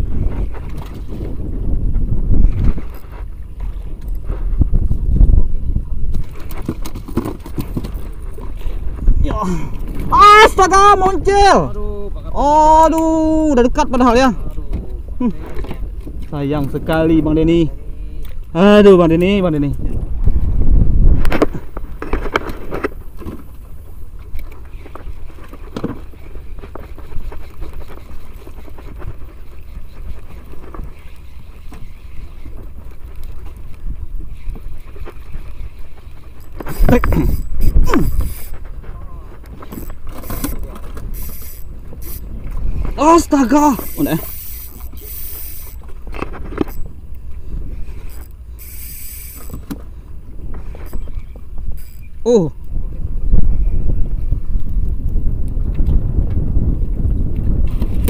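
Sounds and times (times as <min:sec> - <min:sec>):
waves lapping against boat hull: 0:00.0 - 0:11.5, 0:19.2 - 0:52.2
wind buffeting microphone: 0:00.0 - 0:58.0.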